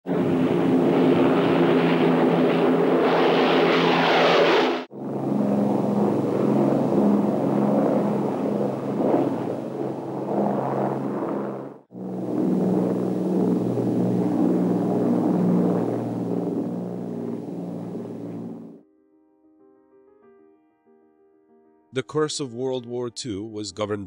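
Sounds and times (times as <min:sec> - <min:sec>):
aircraft piston engines droning: 0:00.1 - 0:18.8.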